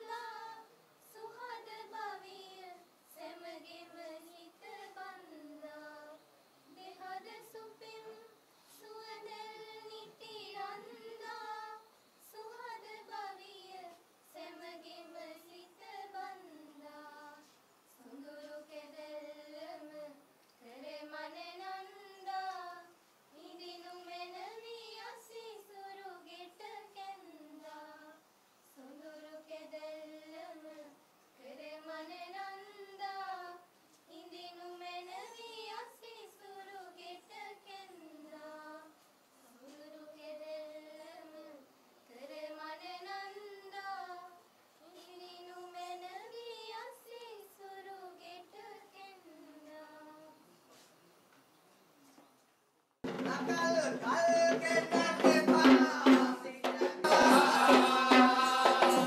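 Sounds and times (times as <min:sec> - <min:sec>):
women singing in unison: 0:00.0 - 0:50.8, 0:53.7 - 0:59.0.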